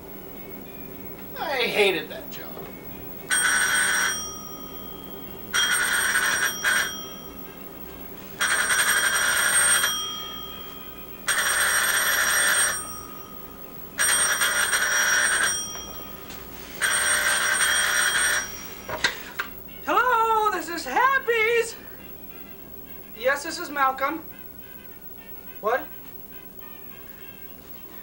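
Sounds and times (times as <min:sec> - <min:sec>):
telephone ringing: 0:00.5 - 0:28.0.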